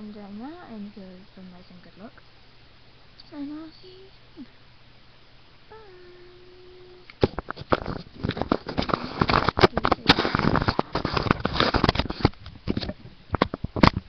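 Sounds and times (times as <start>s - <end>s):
microphone handling noise: 7.1s - 14.0s.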